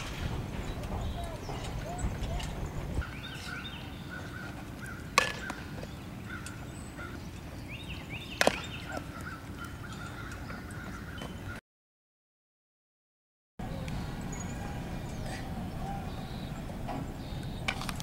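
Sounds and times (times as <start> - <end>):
birds chirping: 0.0 - 11.6, 13.6 - 18.0
bat hitting softball: 5.2 - 5.8, 8.4 - 9.0.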